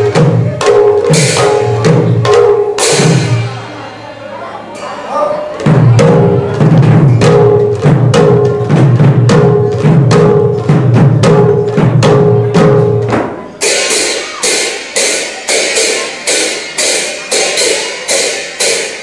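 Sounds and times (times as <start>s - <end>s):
clay drums booming: 0.0s - 3.6s, 5.6s - 19.0s
hand cymbals clashing: 0.0s - 3.6s, 13.6s - 19.0s.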